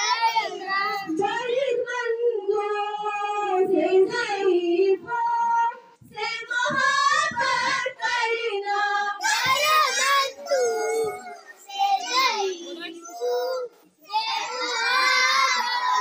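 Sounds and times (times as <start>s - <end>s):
children singing in unison: 0.0s - 16.0s.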